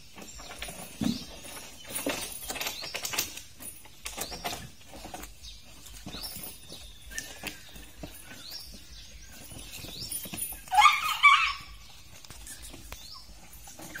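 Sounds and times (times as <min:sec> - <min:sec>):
young elephant squeaking: 0:06.2 - 0:14.0.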